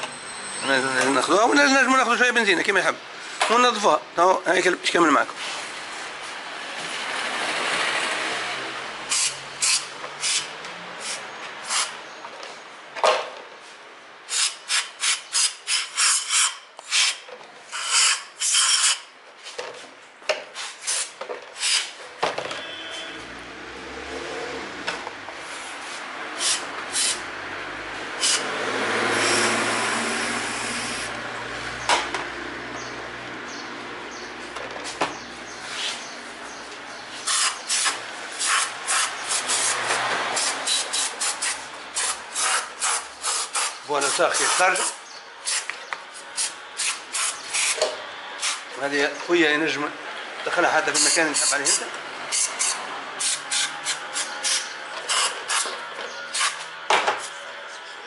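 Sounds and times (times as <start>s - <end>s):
aerosol spray hissing: 26.4s - 27.2s.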